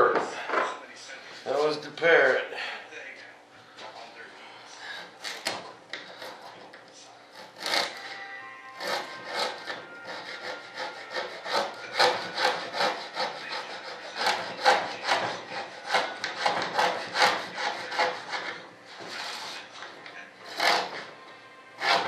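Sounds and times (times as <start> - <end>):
hand tool rasping on foam: 4.9 - 6.6, 7.3 - 8.2, 8.8 - 19.7, 20.4 - 21.2, 21.8 - 22.0.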